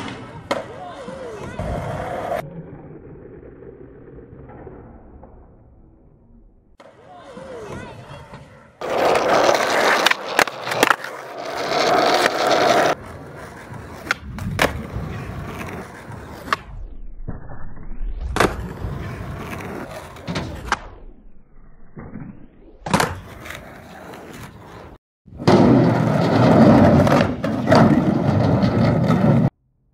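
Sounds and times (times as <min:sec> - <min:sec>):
skateboard wheels rolling on tarmac: 0:06.8 - 0:16.8, 0:18.4 - 0:20.7, 0:22.9 - 0:29.6
skateboard clacks: 0:07.6 - 0:16.6.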